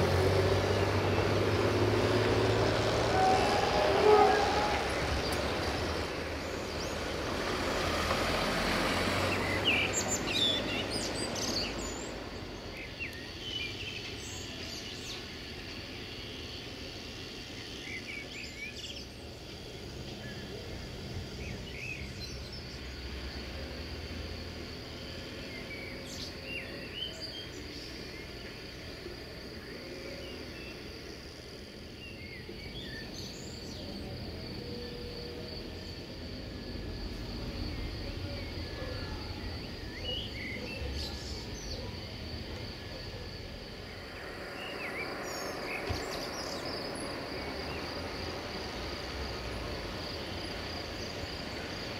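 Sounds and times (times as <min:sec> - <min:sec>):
birds chirping: 0:00.0 - 0:07.7, 0:08.7 - 0:23.0, 0:37.4 - 0:51.9
high insect trill: 0:00.0 - 0:51.9
low rumble of passing train: 0:00.0 - 0:51.9.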